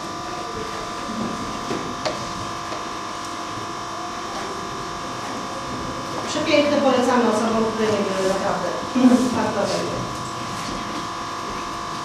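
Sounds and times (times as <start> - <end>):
electrical buzz: 0.0 - 12.0.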